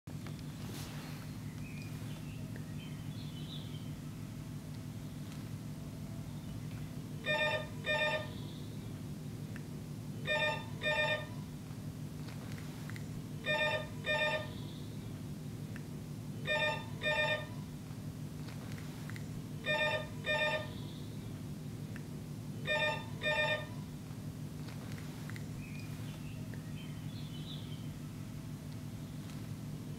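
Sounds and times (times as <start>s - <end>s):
steady low hum: 0.1s - 29.9s
desk telephone ringing: 7.2s - 8.4s, 10.2s - 11.4s, 13.4s - 14.6s, 16.4s - 17.7s, 19.6s - 20.8s, 22.6s - 23.9s.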